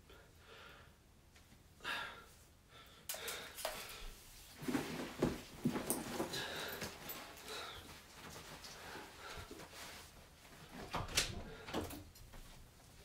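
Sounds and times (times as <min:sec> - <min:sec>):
man breathing heavily and sighing: 0:01.8 - 0:04.3, 0:06.0 - 0:09.7
rustling of clothes being handled: 0:03.6 - 0:13.0.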